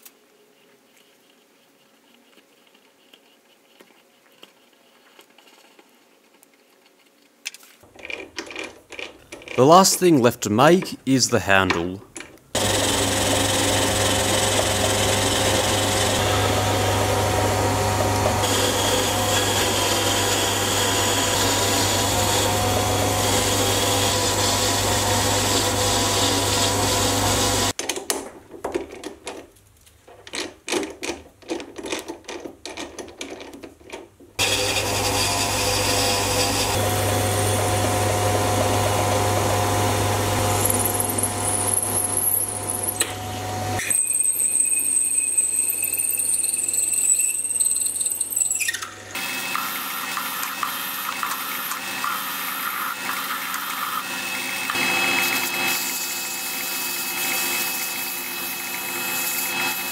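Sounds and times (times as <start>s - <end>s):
lathe motor hum and whine: 12.6s - 27.7s, 34.4s - 43.8s.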